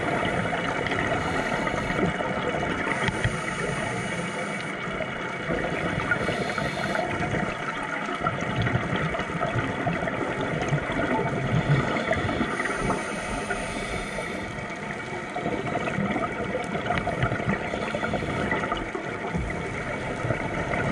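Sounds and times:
underwater hum and rumble: 0.0 - 20.9
faint clicks: 2.9 - 3.4.

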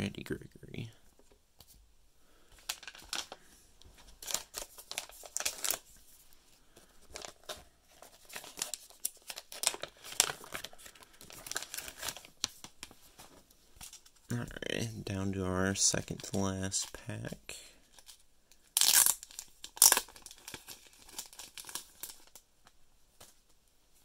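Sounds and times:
plastic packaging crinkling and tearing: 2.6 - 3.4, 4.0 - 5.9, 7.0 - 13.0, 17.9 - 22.4.

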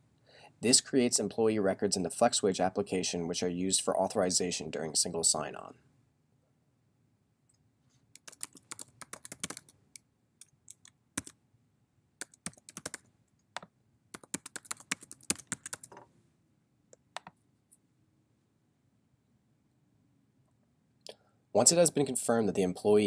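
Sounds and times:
keyboard typing clicks: 8.2 - 9.8, 10.4 - 11.4, 12.2 - 16.0.

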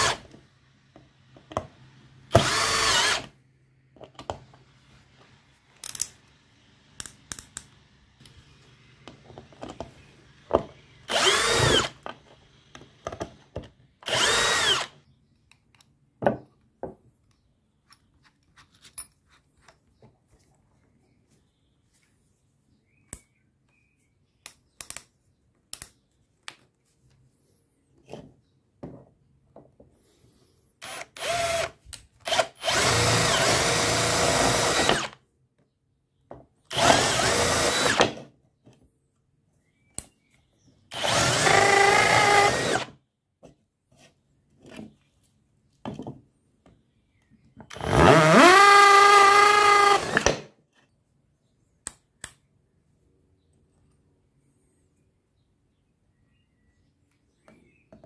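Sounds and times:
cordless drill drilling into wood: 0.0 - 0.3, 2.3 - 3.3, 11.0 - 12.0, 14.0 - 15.0, 30.8 - 35.2, 36.7 - 38.2, 40.9 - 43.0, 47.7 - 50.5.

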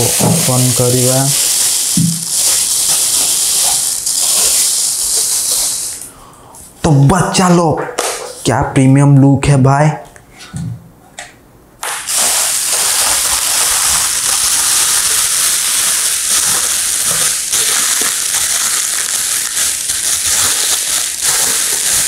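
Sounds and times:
packaging crinkling and rustling: 0.0 - 6.0, 12.0 - 22.0.

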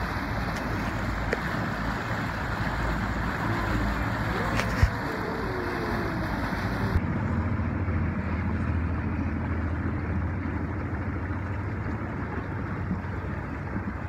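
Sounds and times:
wind on microphone: 0.0 - 7.5
boat motor running: 0.0 - 14.0
water rushing: 0.0 - 14.0.

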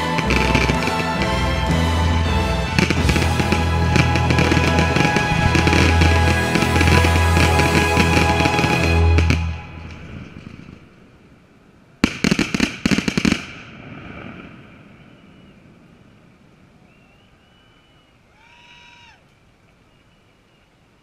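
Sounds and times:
firework crackling pops: 12.0 - 14.5.

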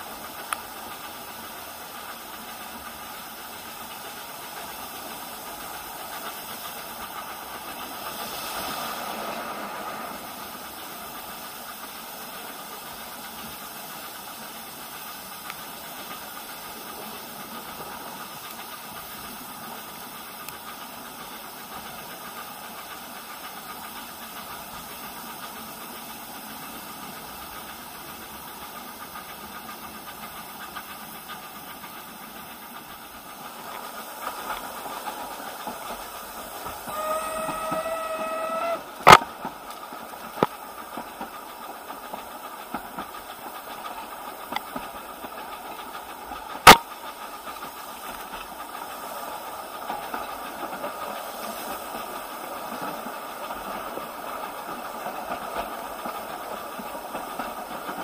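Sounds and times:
steam locomotive hissing: 0.0 - 58.0
steam whistle: 36.8 - 39.2.

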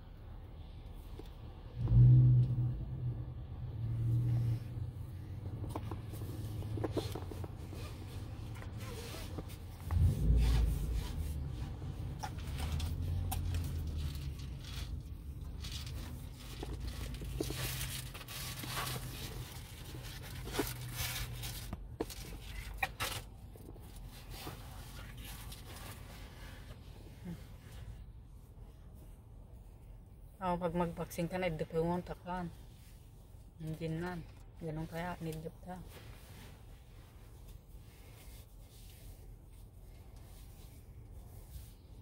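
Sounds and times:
car interior rumble: 0.9 - 32.5
rubbing and rustling: 4.4 - 29.9, 31.8 - 42.0.

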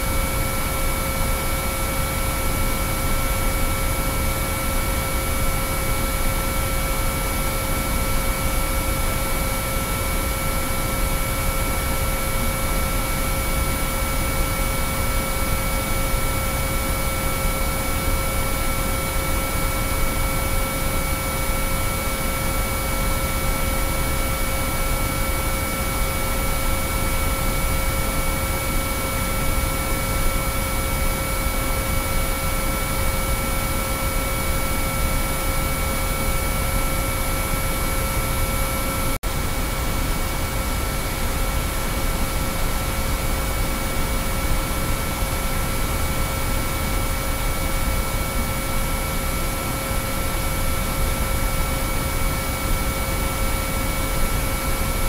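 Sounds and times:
steady pure sine tones: 0.0 - 55.0.

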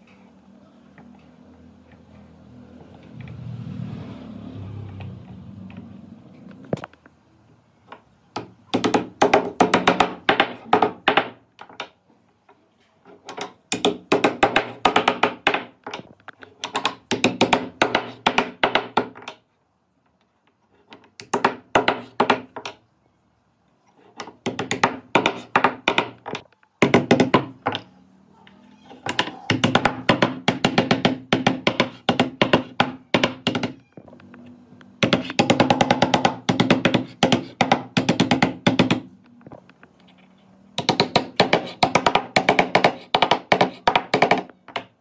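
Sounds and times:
rapid sharp knocks: 29.5 - 33.8, 35.0 - 39.1, 40.8 - 44.5.

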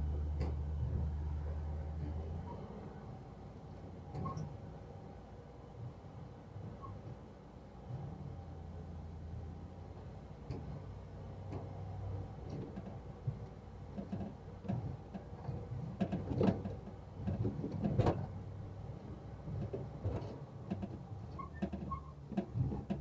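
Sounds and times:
pickup truck low rumble: 0.0 - 4.4, 7.9 - 23.0.

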